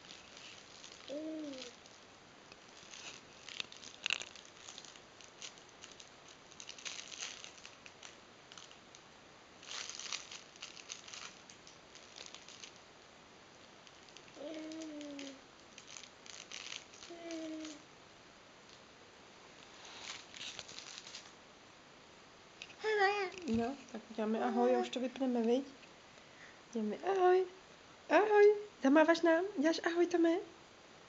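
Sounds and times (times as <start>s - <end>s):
fabric pages rustling: 0.0s - 8.9s, 19.6s - 21.3s.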